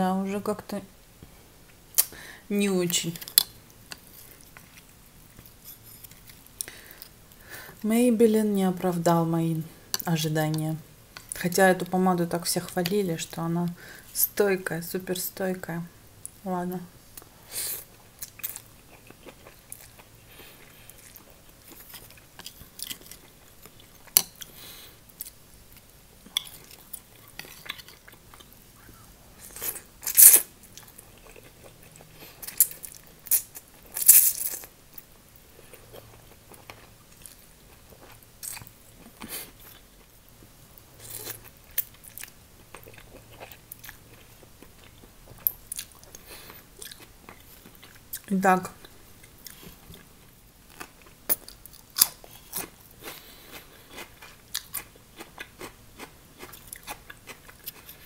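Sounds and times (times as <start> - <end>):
wet chewing and mouth clicks: 41.0 - 50.1, 50.7 - 58.0.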